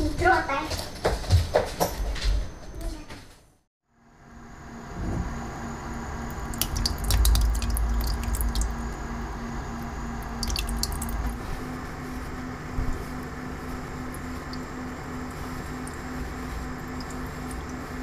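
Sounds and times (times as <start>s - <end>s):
wet dripping and squishing: 6.4s - 8.8s, 10.2s - 11.4s.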